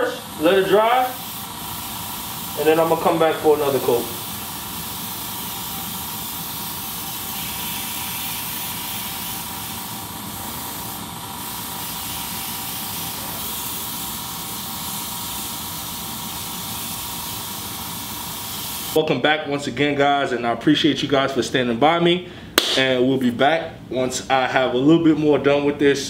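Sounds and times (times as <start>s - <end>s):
airbrush hiss: 0.0s - 19.0s.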